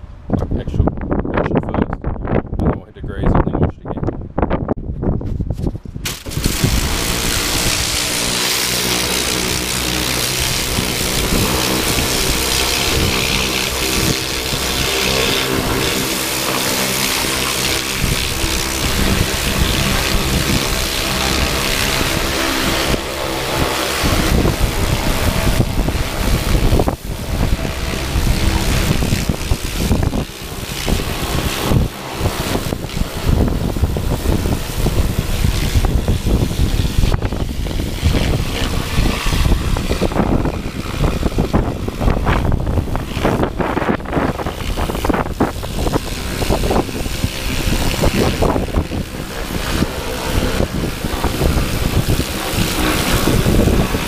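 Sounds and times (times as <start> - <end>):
wind buffeting microphone: 0.0 - 54.0
pressure washer spray hiss: 6.1 - 40.0.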